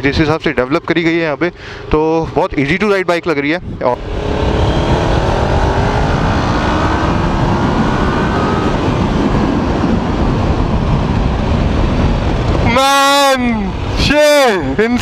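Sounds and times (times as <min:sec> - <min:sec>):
wind rush on microphone: 0:01.7 - 0:15.0
motorcycle engine accelerating: 0:03.8 - 0:12.7.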